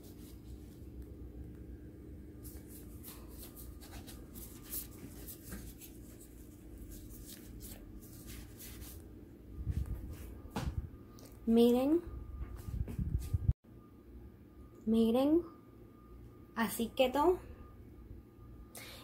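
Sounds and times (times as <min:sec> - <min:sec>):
hands rubbing on noodles: 0:02.4 - 0:09.1.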